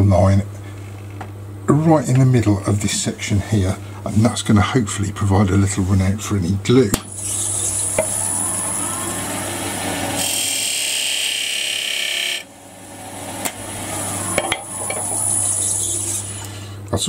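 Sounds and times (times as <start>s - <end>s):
chisel scraping spinning wood: 7.1s - 16.5s
wood lathe motor humming: 7.1s - 16.7s.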